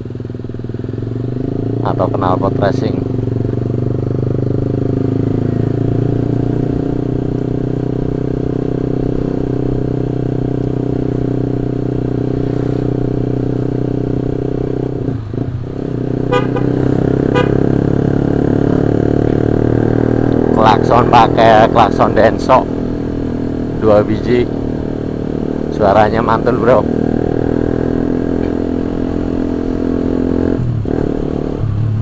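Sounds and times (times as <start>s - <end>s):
motorcycle engine cruising: 0.0s - 32.0s
motorcycle horn beeps: 16.3s - 17.7s.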